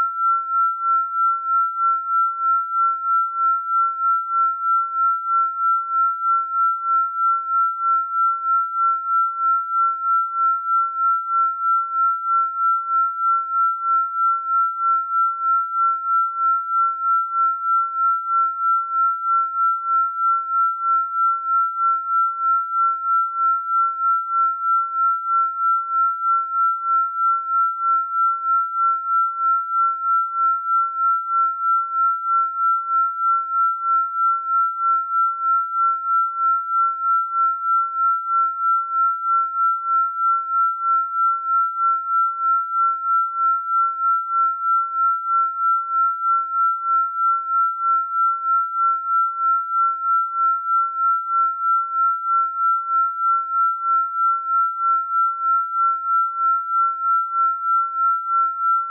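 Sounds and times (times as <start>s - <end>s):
pulsing sine tone: 0.0s - 58.9s.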